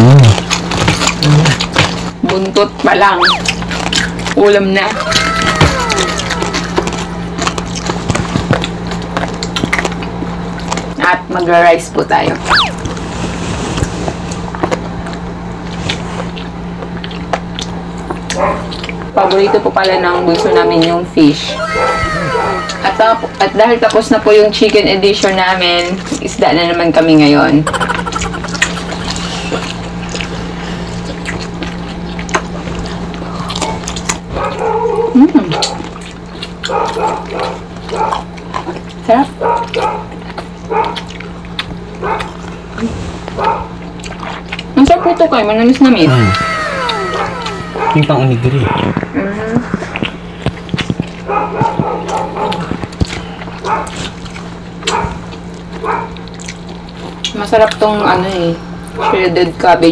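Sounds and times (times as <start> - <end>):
chewing and smacking: 0.0 - 59.6
steady low hum: 0.0 - 59.9
brief pitched sound: 3.2 - 3.5, 12.4 - 12.9
dog barking: 18.3 - 20.7, 33.6 - 35.9, 36.6 - 38.3, 39.4 - 41.1, 42.0 - 42.4, 43.4 - 43.8, 47.1 - 49.0, 51.3 - 52.7, 53.6 - 54.1, 54.8 - 55.2, 55.8 - 56.2, 59.0 - 59.4.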